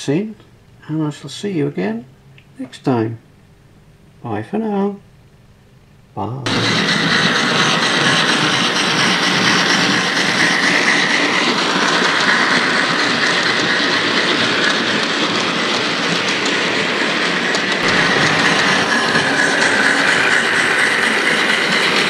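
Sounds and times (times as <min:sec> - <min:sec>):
model train motor whine: 0:06.5 - 0:15.9, 0:17.4 - 0:22.0
model train wheels clattering: 0:06.5 - 0:22.0.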